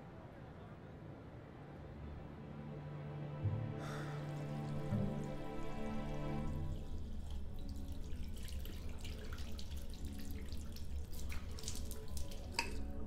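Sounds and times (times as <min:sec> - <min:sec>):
water splashes and drips: 0:03.9 - 0:13.0
tap water running into basin: 0:04.3 - 0:13.0.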